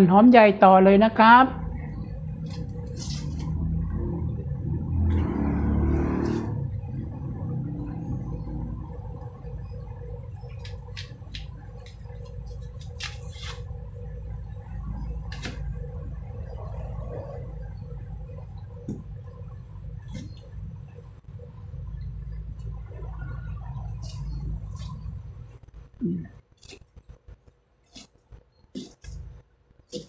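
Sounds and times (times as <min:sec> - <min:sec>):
low rumble: 0:01.2 - 0:10.6, 0:13.9 - 0:26.4
onion skin crackling: 0:10.6 - 0:13.8, 0:26.4 - 0:30.0.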